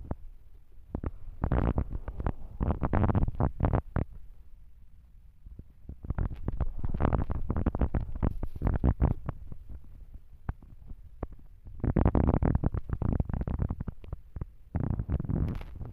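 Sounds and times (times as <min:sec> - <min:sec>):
kittens rustling against microphone: 0:06.2 - 0:10.0.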